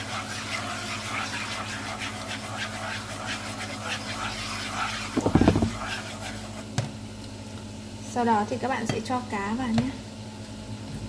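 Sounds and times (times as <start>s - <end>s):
chopsticks stirring: 0.0s - 6.7s
loud knock: 5.2s - 5.8s.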